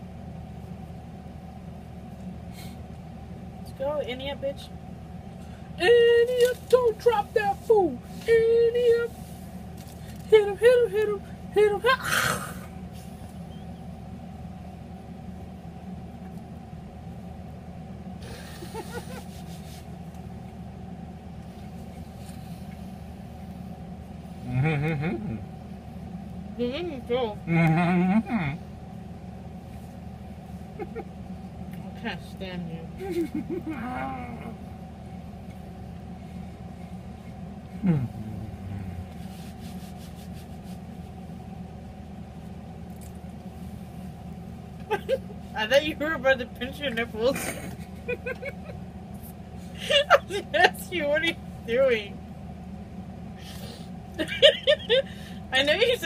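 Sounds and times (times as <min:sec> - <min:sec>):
steady low hum: 0:00.0 - 0:56.0
stifled vocal sound: 0:37.8 - 0:39.3
quiet chewing: 0:38.7 - 0:41.1, 0:42.4 - 0:43.5.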